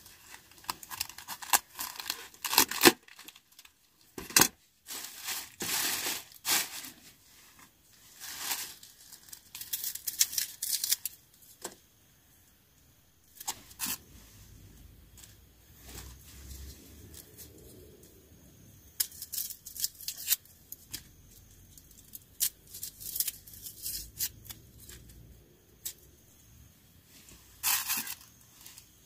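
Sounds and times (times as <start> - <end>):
plastic bag crinkling: 0.1 - 7.2
cabbage leaves tearing: 0.6 - 3.4.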